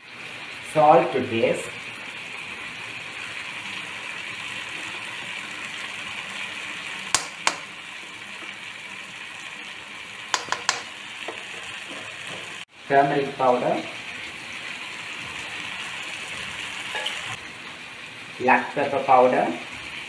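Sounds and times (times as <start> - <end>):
food sizzling in a wok: 0.0 - 20.0
metal spoon clicking on pan: 7.1 - 7.8, 10.3 - 11.4.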